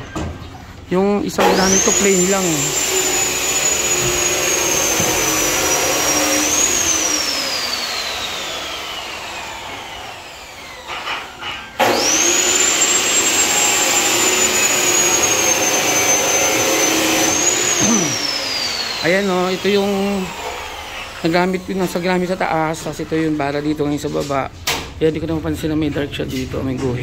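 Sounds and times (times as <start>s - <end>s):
power tool motor whining: 1.4s - 23.4s
knocks: 3.9s - 5.6s.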